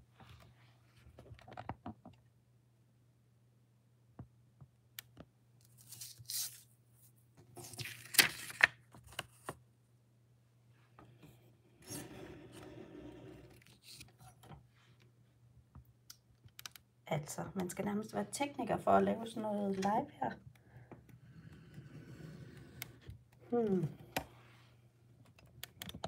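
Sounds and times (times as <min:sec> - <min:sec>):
paper rustling and sliding: 0:05.7 - 0:06.7, 0:07.5 - 0:09.6.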